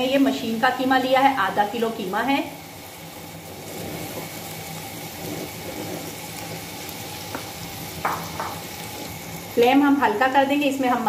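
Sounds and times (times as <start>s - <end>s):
meat sizzling in frying pan: 0.0s - 11.0s
spatula knocking against pan: 7.3s - 8.6s.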